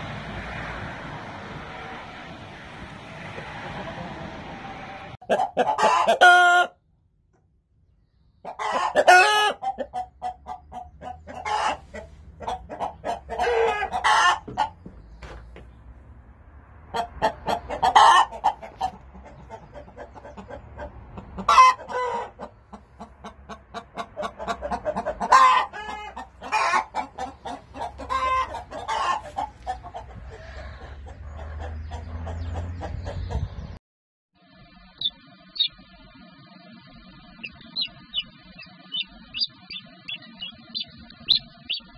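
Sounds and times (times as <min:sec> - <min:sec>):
chickens clucking: 0:03.3 - 0:04.6, 0:05.2 - 0:06.7, 0:08.4 - 0:15.8, 0:16.9 - 0:33.8, 0:34.8 - 0:41.9
rooster crowing: 0:13.3 - 0:14.5.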